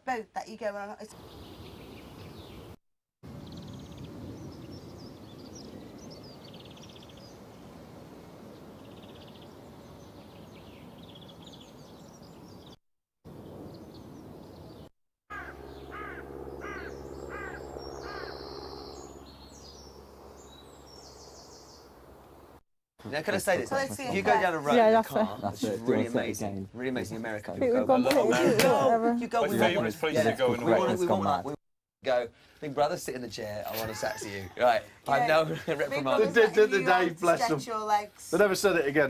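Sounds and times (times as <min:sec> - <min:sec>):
birdsong chirps and calls: 0:01.1 - 0:21.9
low hum: 0:15.5 - 0:22.6.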